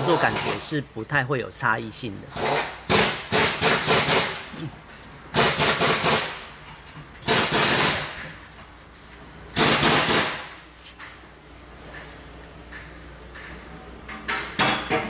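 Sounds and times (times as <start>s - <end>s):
pneumatic impact wrench hammering: 2.3s - 4.6s, 5.3s - 6.6s, 7.2s - 8.4s, 9.6s - 10.7s.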